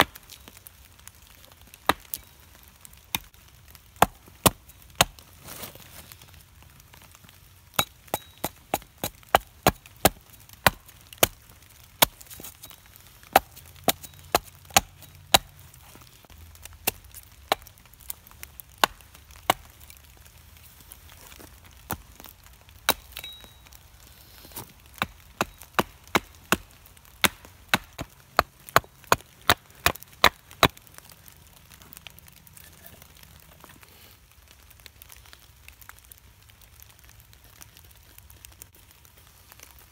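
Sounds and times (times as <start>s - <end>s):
axe chopping wood: 4.0s - 5.2s, 7.7s - 11.4s, 12.0s - 15.6s, 16.8s - 19.7s, 24.8s - 30.8s.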